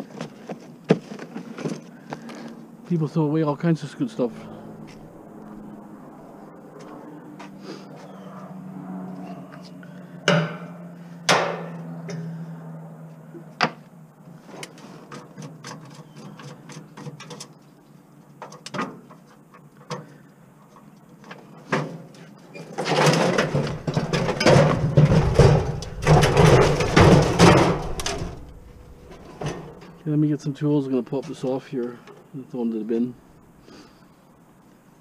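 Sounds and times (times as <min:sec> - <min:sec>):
grill scraping and rumbling: 0:03.8 - 0:06.6, 0:22.5 - 0:31.6.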